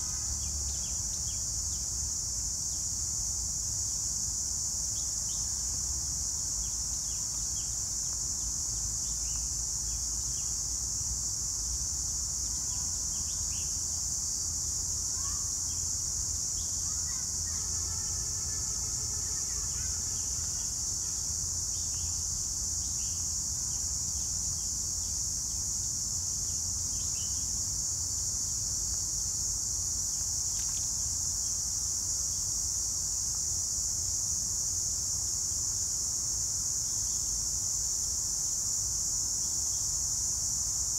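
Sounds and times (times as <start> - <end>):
insect chorus shrilling: 15.1 - 28.6, 29.2 - 33.6.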